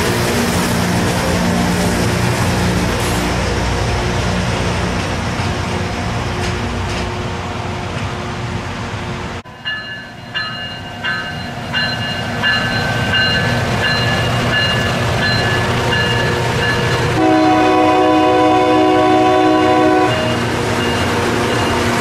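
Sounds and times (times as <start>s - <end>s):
rail grinder rumbling: 0.0s - 22.0s
crossing bell dinging: 9.4s - 18.4s, 19.2s - 22.0s
long horn blast: 17.2s - 20.5s.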